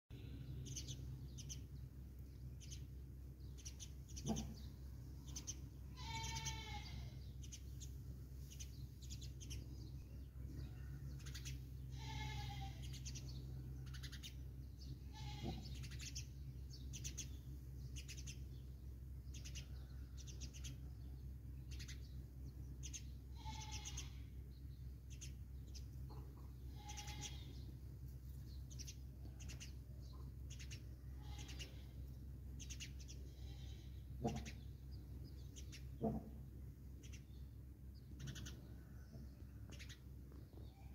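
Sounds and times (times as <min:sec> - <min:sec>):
small birds chirping: 0:00.1 - 0:40.9
short high animal cries: 0:06.0 - 0:07.1, 0:11.9 - 0:12.9, 0:23.4 - 0:24.2.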